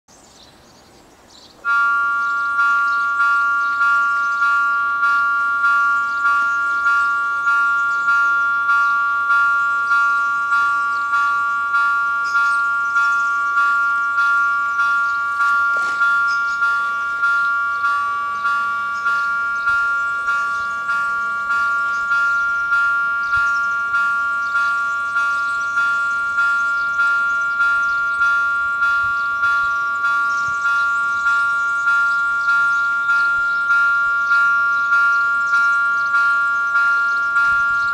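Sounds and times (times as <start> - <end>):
level crossing bells ringing: 1.6 - 37.9.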